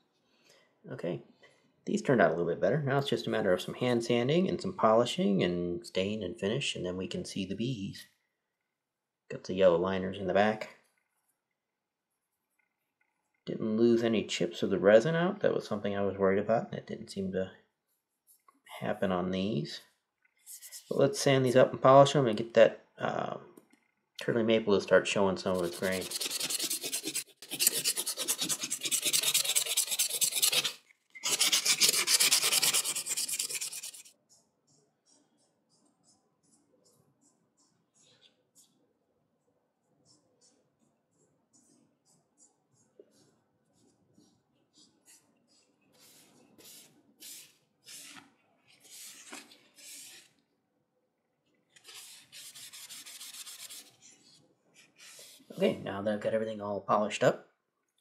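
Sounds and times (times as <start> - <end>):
sandpaper rasping on wood: 25.4 - 34.1, 51.8 - 54.0
paper towel rubbing wood: 25.4 - 36.6, 44.7 - 50.3, 51.8 - 55.7.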